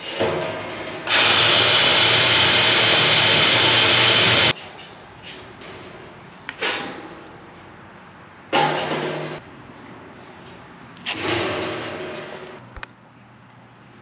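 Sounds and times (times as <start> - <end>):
hole saw cutting steel: 1.1 - 4.5.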